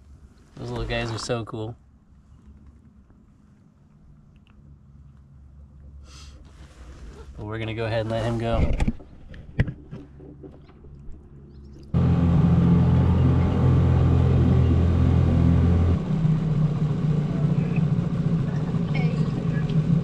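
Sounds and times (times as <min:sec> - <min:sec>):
boat motor running: 0:10.3 - 0:20.0.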